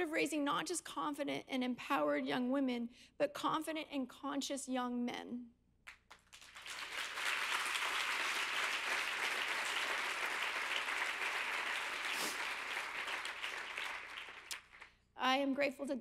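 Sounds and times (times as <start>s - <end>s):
audience applauding: 6.1s - 14.9s.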